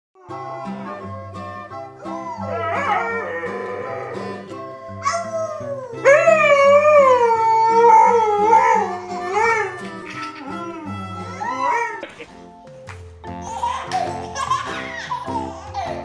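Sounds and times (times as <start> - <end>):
plucked guitar music: 0.2 - 16.0
dog howling: 2.0 - 4.4, 5.0 - 12.0
toddler howling: 2.0 - 4.4, 5.0 - 12.0.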